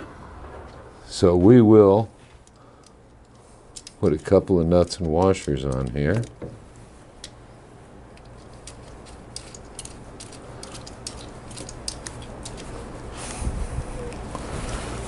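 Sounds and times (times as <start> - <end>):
low steady hum: 0.0 - 15.0
metallic clicks of wrench on nuts: 2.4 - 6.4.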